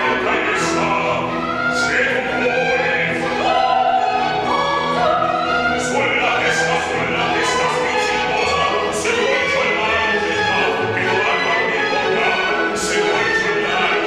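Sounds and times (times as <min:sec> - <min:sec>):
bass singing opera: 0:00.0 - 0:14.0
orchestral accompaniment: 0:00.0 - 0:14.0
soprano singing with vibrato: 0:00.0 - 0:14.0.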